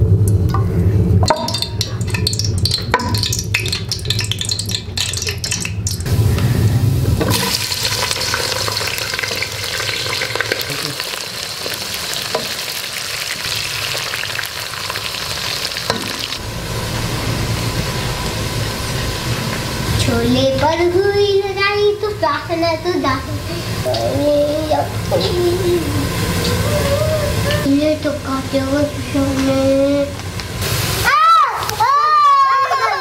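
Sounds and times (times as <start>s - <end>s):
onions sizzling in oil: 7.2s - 33.0s.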